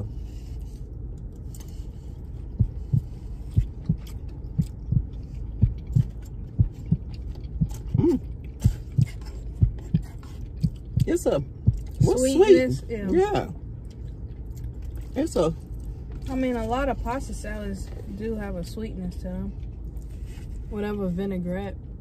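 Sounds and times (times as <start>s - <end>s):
person chewing food: 0.8s - 12.1s, 13.6s - 16.3s.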